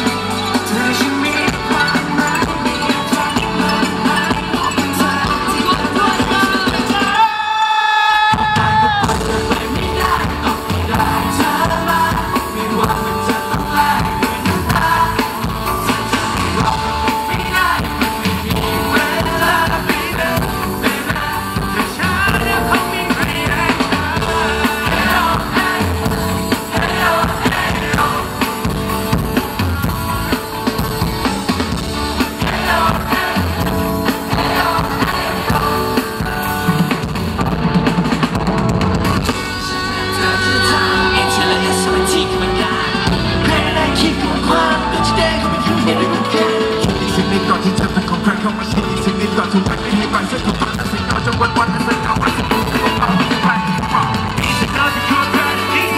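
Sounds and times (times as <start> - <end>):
men singing into microphones: 0.0 - 29.1, 32.2 - 36.5, 39.6 - 55.9
live pop-rock band: 0.0 - 55.9.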